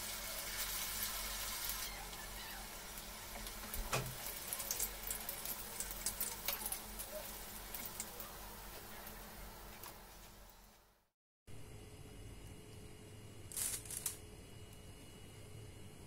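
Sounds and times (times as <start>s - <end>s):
hot oil sizzling and crackling: 0.0s - 10.7s.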